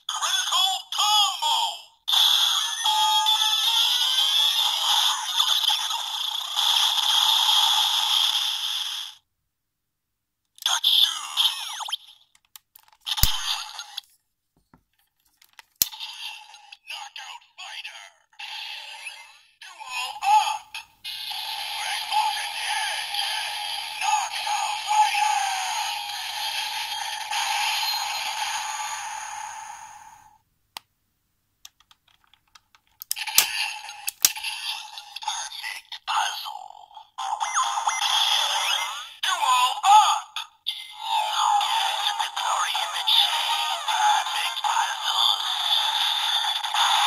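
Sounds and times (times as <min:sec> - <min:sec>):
toy electronic sound effects: 0:00.1 - 0:09.2, 0:10.6 - 0:12.3, 0:13.1 - 0:14.0, 0:15.8 - 0:30.3, 0:33.0 - 0:47.0
sharp toy click: 0:12.4 - 0:13.6, 0:33.0 - 0:34.5
plastic toy clicks: 0:31.6 - 0:34.6.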